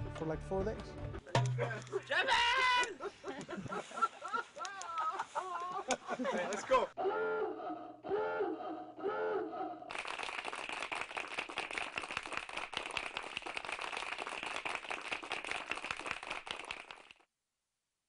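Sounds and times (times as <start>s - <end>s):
group of people clapping: 9.9s - 17.2s.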